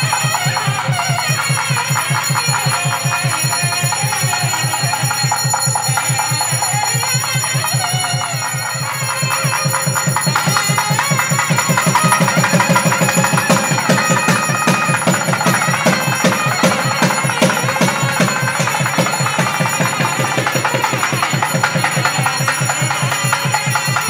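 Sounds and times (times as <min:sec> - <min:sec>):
fast steady drumbeat: 0:00.0 - 0:24.0
temple bells ringing: 0:00.0 - 0:24.0.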